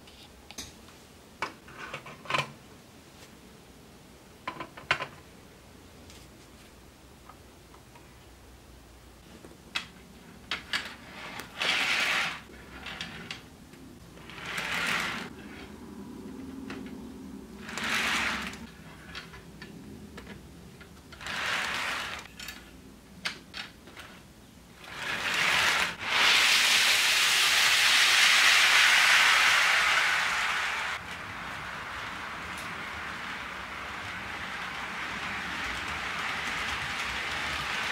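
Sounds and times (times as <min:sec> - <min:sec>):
model train wheels rolling on rails: 0:09.8 - 0:15.8, 0:16.4 - 0:37.9
short bursts of rushing noise: 0:25.0 - 0:37.9.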